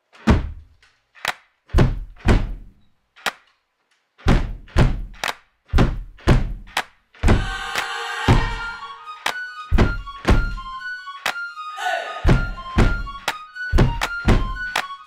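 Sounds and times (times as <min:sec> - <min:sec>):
heavy reverberant percussive hits: 0:12.2 - 0:14.5.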